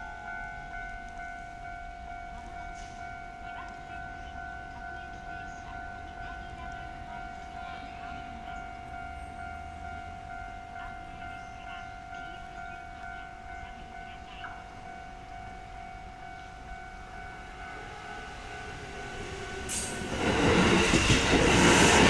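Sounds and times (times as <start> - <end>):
level crossing warning alarm: 0.0 - 22.0.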